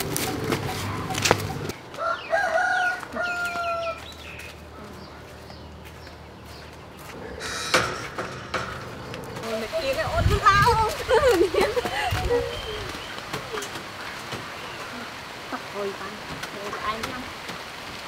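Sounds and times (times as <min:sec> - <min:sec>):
rooster crowing: 0:01.9 - 0:04.0
sharp knock: 0:07.4 - 0:09.1.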